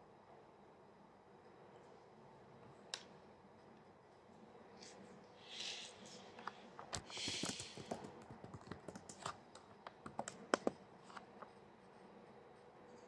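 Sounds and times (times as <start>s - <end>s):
short hiss: 5.4s - 6.3s, 7.0s - 7.8s
fingers tapping handheld device: 6.4s - 11.5s.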